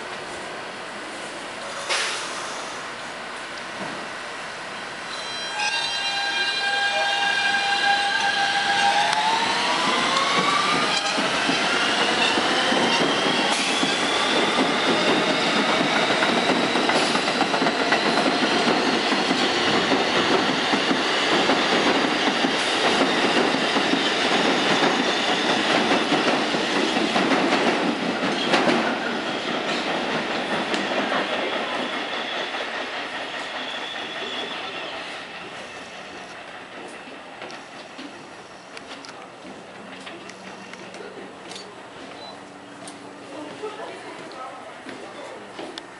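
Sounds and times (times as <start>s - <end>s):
subway train motors whining: 0.0s - 45.9s
rail joint clacks: 8.2s - 35.0s.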